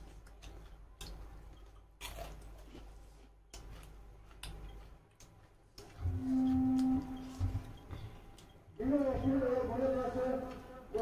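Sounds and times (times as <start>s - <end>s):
people chewing food: 0.0s - 9.6s.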